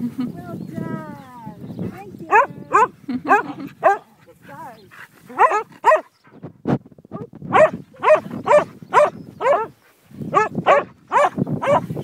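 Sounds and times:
dog barking: 2.3 - 4.0, 5.3 - 6.1, 7.2 - 9.7, 10.3 - 11.9.

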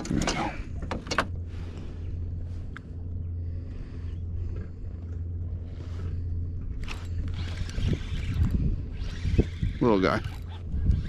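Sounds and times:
wind buffeting microphone: 1.5 - 11.0.

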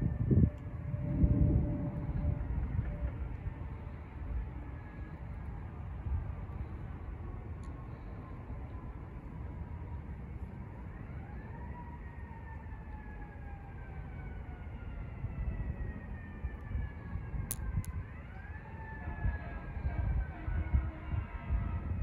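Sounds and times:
distant siren wailing: 0.0 - 22.0.

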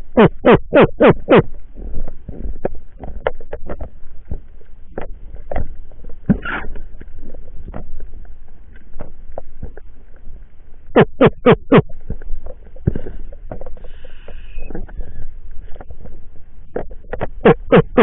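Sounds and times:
underwater clicks and knocks: 1.5 - 10.4, 11.0 - 18.0.

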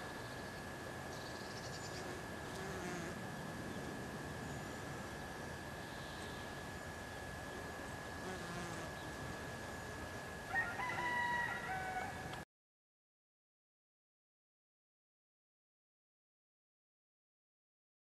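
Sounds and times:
outdoor background hiss: 0.0 - 12.4
steady high whine: 0.0 - 12.4
rooster crowing: 10.5 - 12.4.

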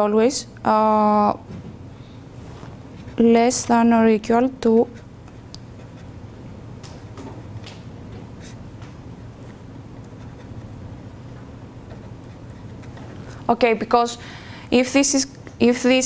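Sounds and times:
steady low hum: 0.0 - 16.0
pen scratching on paper: 5.8 - 6.2, 8.4 - 8.6, 10.0 - 10.8, 11.9 - 13.2.

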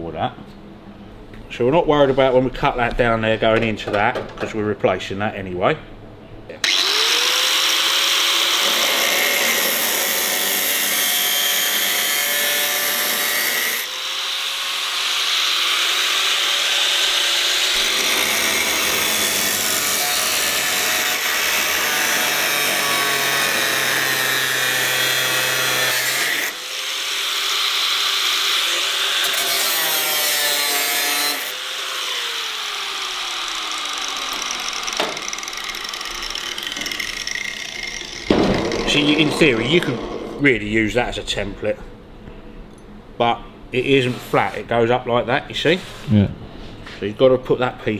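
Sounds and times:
grinder motor whine: 6.6 - 9.4
angle grinder cutting sheet metal: 6.6 - 40.9.

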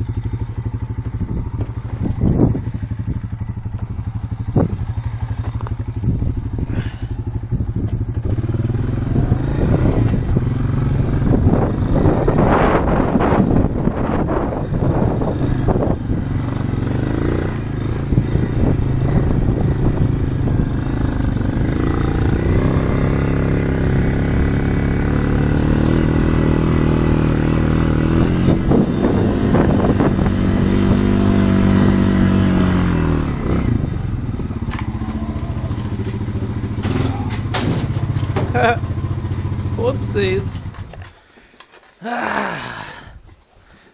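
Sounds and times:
atv engine running: 0.0 - 43.1
machine rattles and knocks: 36.8 - 38.6.

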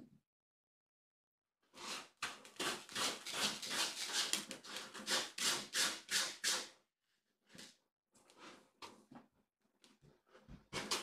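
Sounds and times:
kitten scratching cat litter: 1.8 - 6.6.

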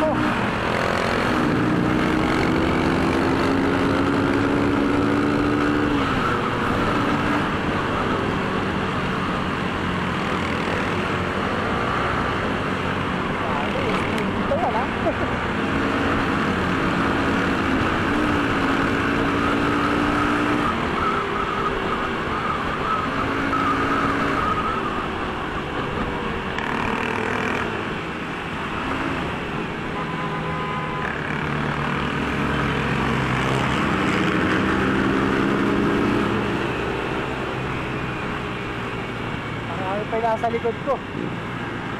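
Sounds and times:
motorcycle engines running: 0.0 - 30.0, 30.9 - 41.9
road and wind noise: 0.0 - 41.9.

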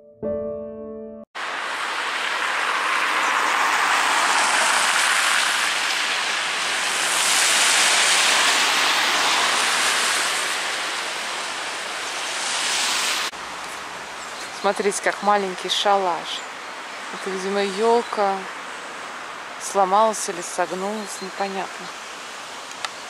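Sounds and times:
road traffic rushing: 1.4 - 23.0.

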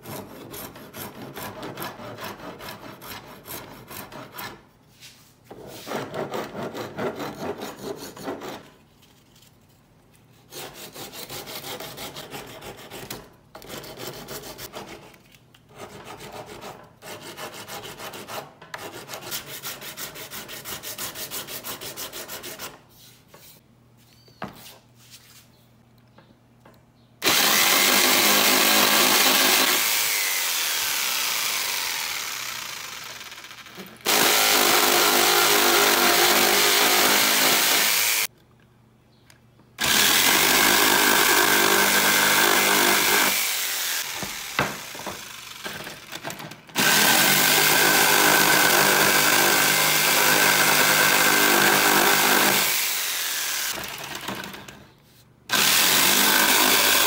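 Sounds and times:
sandpaper rubbing on wood: 0.0 - 8.6
electric jigsaw: 27.2 - 38.3, 39.8 - 54.8, 55.5 - 57.0
electric power tool running: 27.2 - 38.3, 39.8 - 46.2, 46.8 - 54.6.

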